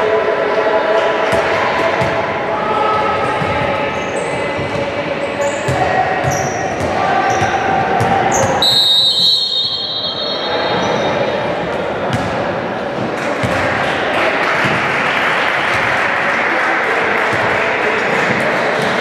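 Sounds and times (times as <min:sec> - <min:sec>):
voices in a large hall: 0:00.0 - 0:19.0
sneakers squeaking: 0:03.2 - 0:13.1
referee's whistle: 0:08.4 - 0:11.2.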